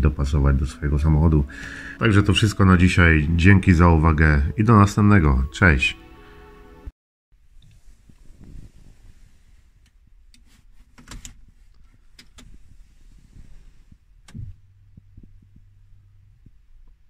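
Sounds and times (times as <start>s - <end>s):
low ignition hum: 11.4s - 17.0s.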